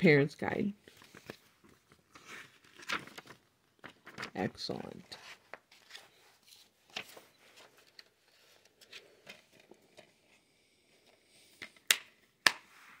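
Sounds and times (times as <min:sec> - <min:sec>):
paper rustling: 0:00.8 - 0:10.4.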